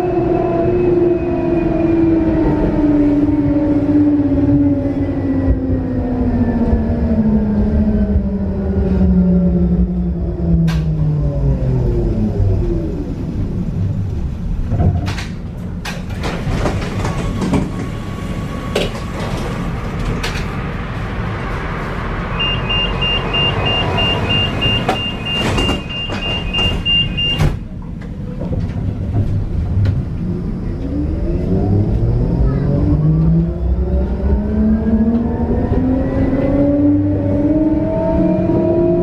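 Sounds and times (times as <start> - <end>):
tram motor whine: 0.0 - 39.0
tram doors clunking: 13.6 - 31.1
door-closing warning beep: 22.4 - 27.6.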